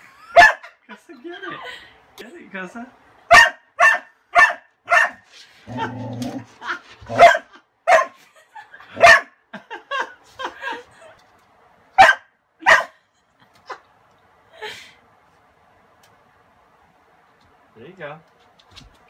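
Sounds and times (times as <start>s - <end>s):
dog barking: 0.3s - 0.7s, 3.3s - 5.2s, 7.1s - 8.2s, 9.0s - 9.4s, 12.0s - 13.0s
dog yipping: 3.3s - 5.2s, 7.1s - 8.2s, 12.0s - 12.9s.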